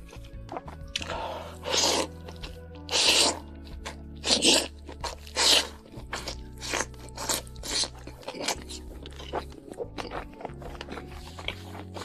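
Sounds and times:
crisp crunching bites: 0:00.0 - 0:12.0
soft background music: 0:00.0 - 0:12.0
soft chewing: 0:00.0 - 0:12.0.

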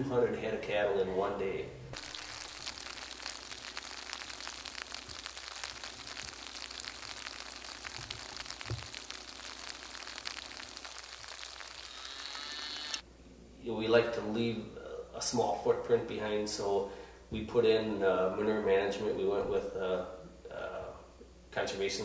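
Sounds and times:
light rain falling: 0:02.0 - 0:13.0.

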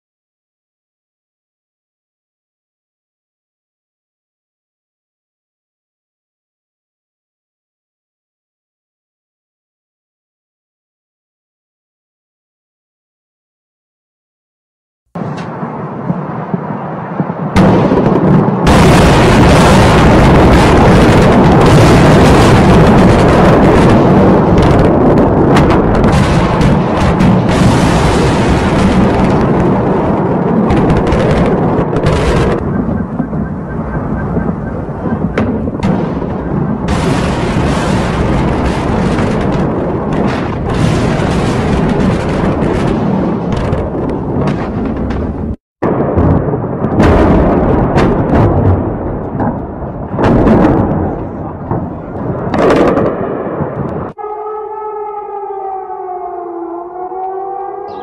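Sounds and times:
explosions and blasts: 0:15.2 - 0:54.2.

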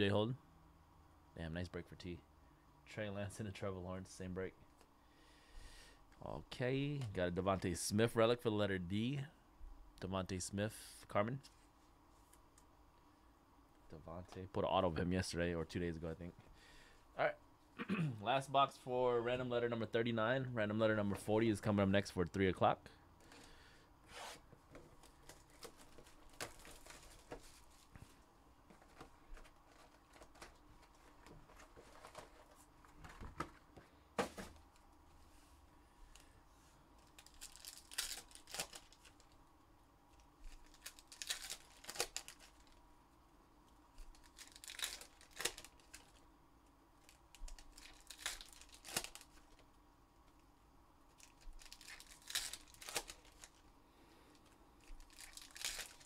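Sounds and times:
foil packs tearing and crinkling: 0:37.2 - 0:39.3, 0:40.6 - 0:42.8, 0:44.1 - 0:46.2, 0:47.1 - 0:49.6, 0:51.2 - 0:53.6, 0:54.9 - 0:56.0.

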